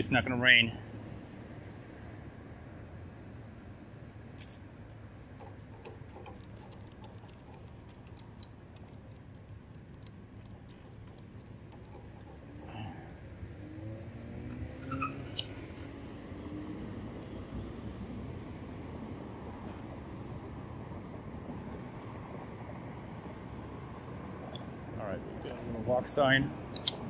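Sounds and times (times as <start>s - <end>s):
road traffic rumble: 0.0s - 27.0s
vehicle accelerating: 11.9s - 20.0s.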